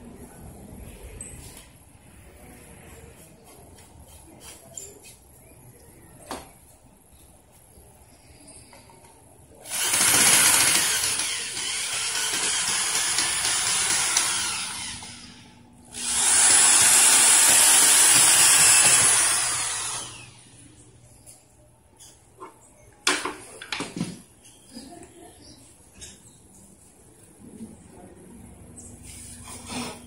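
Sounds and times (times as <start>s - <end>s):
electric drill drilling into wood: 9.6s - 20.4s.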